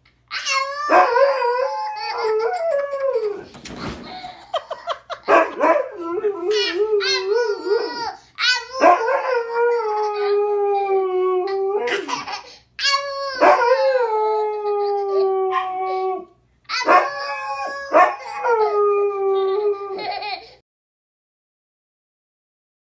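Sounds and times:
husky howling: 0.8 - 3.5, 13.4 - 20.0
dog yipping: 16.7 - 17.3, 17.9 - 18.3.

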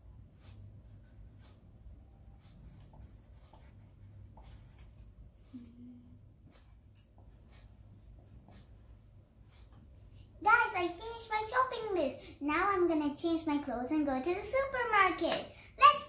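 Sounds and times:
pencil scratching on paper: 0.3 - 5.5, 6.4 - 10.6.

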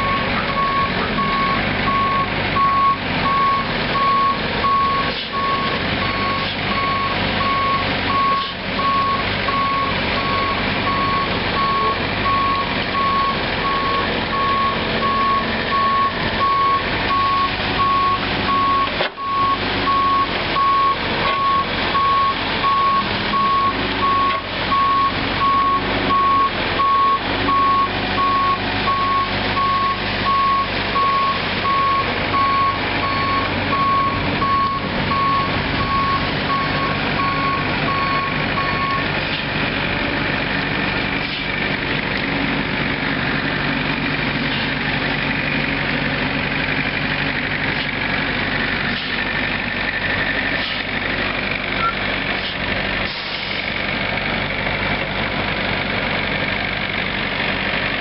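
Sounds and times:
high-pitched backup alarm beeping: 0.0 - 39.1
diesel engine running: 0.0 - 58.0.

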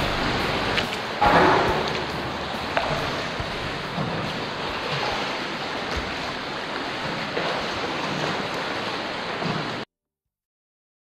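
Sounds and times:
seawater lapping against rock walls: 0.0 - 9.9.

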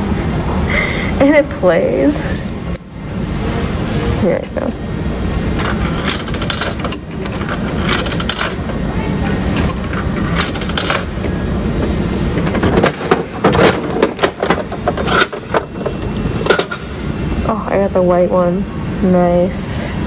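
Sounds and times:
store background noise: 0.0 - 20.0
coins dropping into machine: 5.6 - 8.6, 9.6 - 11.2
coin dial clicking: 5.6 - 8.7.

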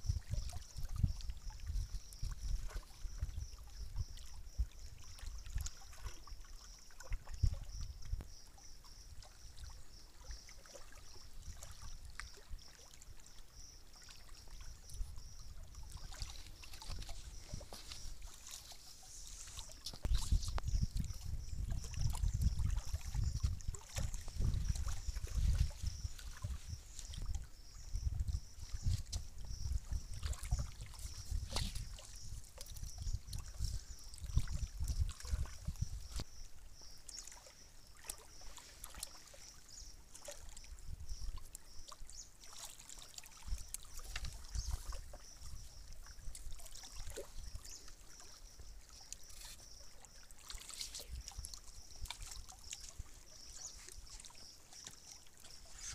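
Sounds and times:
wind buffeting microphone: 0.0 - 5.6, 14.8 - 18.3, 19.4 - 36.4
water lapping on rocky shore: 0.0 - 55.9.

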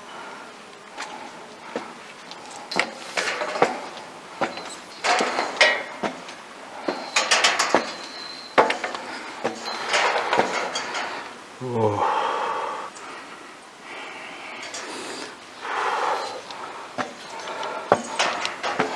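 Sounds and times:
footsteps on rough track: 0.9 - 10.6, 16.4 - 18.9.

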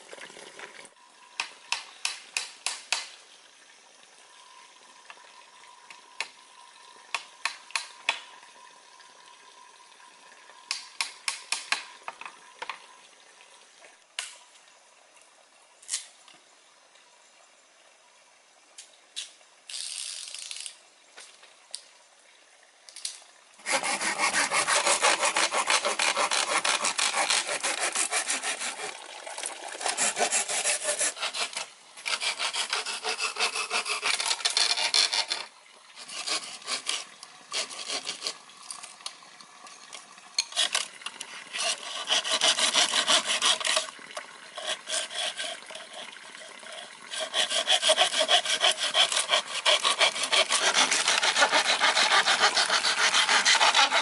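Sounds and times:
hand tool scraping strokes: 23.6 - 38.4, 40.4 - 43.9, 44.5 - 54.0.

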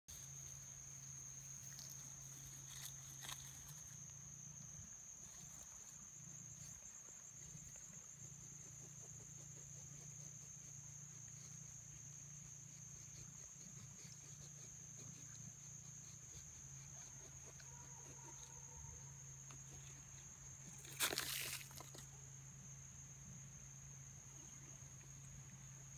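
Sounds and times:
cricket trilling: 0.1 - 25.9.

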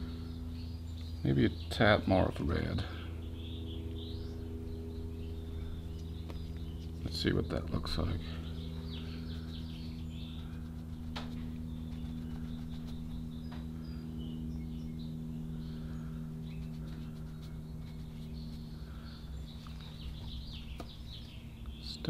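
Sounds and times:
low room hum: 0.0 - 22.0
faint bird chirps: 8.2 - 22.0.

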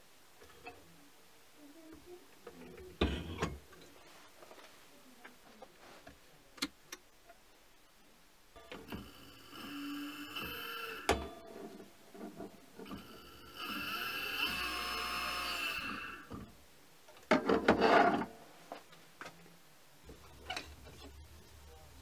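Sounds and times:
servo motor whining: 8.9 - 11.2, 12.9 - 16.3.

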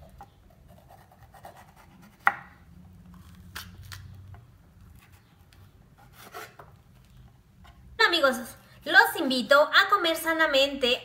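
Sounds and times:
knife cutting pepper on board: 0.0 - 3.9, 6.0 - 6.7.

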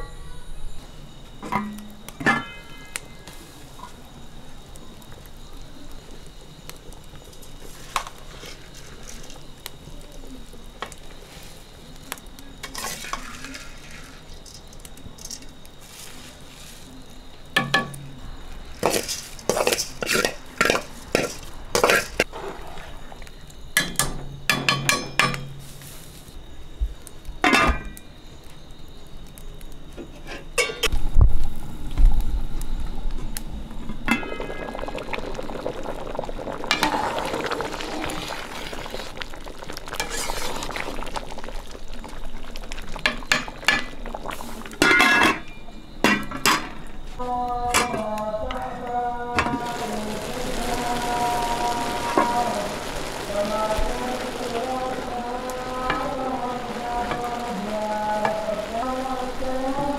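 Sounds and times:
stock bubbling: 34.0 - 44.4
metal ladle scraping a pot: 40.0 - 40.6.

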